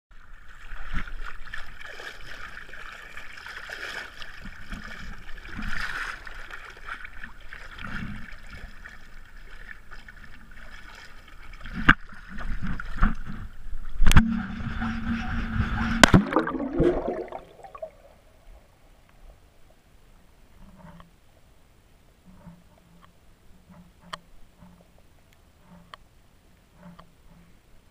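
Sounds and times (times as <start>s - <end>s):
water sloshing and splashing: 0.1s - 18.6s
muffled underwater bubbling: 14.0s - 18.2s.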